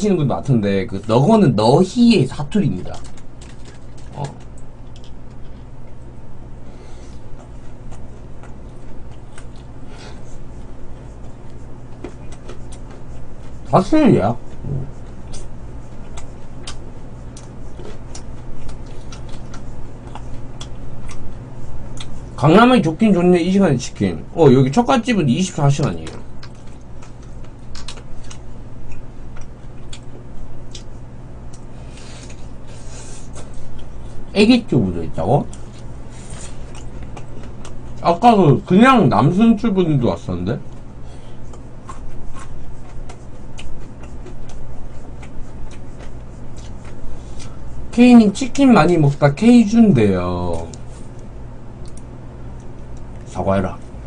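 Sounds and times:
steady low hum: 0.0s - 54.0s
chewing crispy chicken: 2.8s - 6.0s, 7.1s - 13.7s, 14.5s - 22.3s, 25.7s - 32.7s, 35.4s - 38.0s, 40.7s - 47.7s.

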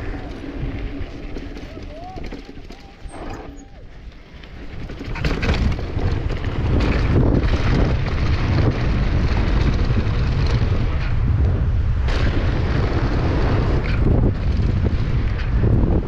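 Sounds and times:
bike tyres rolling over dirt: 0.0s - 16.0s
wind noise on microphone: 0.0s - 16.0s.

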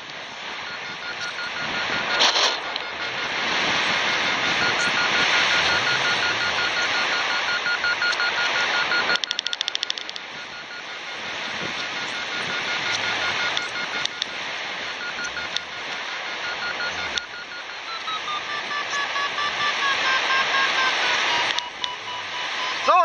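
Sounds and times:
wind rushing over microphone: 0.6s - 7.8s, 10.3s - 15.2s
variometer beeping rapidly: 0.6s - 23.0s.

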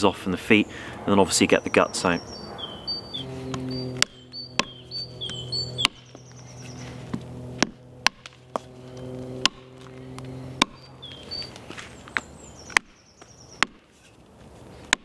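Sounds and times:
axe chopping against a log: 4.0s - 6.2s, 7.1s - 8.7s, 9.4s - 10.8s, 12.7s - 13.0s, 13.6s - 13.9s.

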